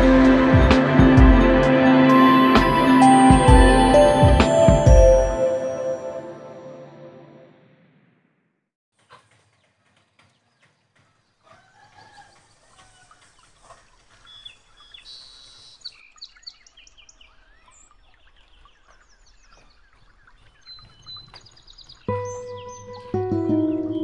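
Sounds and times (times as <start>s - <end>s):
small birds chirping: 9.6s - 24.0s
chickens clucking: 11.0s - 14.9s.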